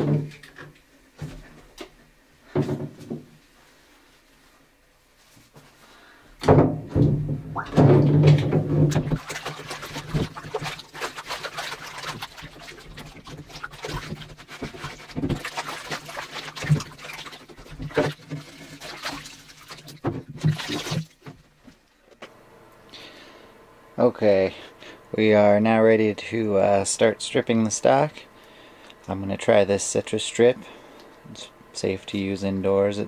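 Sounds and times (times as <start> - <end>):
wooden stock knocking on tub: 6.4 - 10.4
water sloshing in a bathtub: 6.4 - 22.0
rag scrubbing wood: 8.5 - 21.4.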